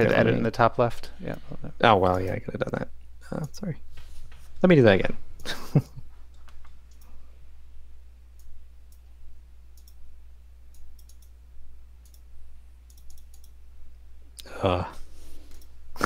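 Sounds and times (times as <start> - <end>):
low electrical hum: 0.0 - 16.0
computer mouse clicking: 6.3 - 7.1, 9.8 - 10.0, 10.7 - 11.4, 12.0 - 12.3, 12.9 - 13.6.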